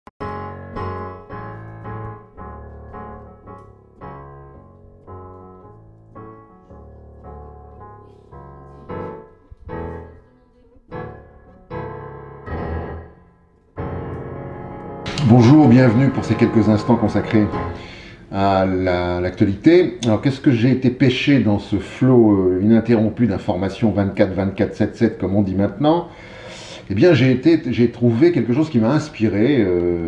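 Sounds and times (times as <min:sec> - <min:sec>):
slow piano chords: 0:00.2 - 0:20.6.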